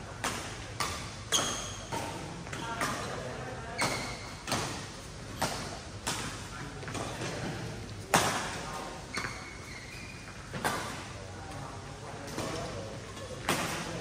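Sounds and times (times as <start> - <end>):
racket hitting shuttlecock: 3.8 - 7.2.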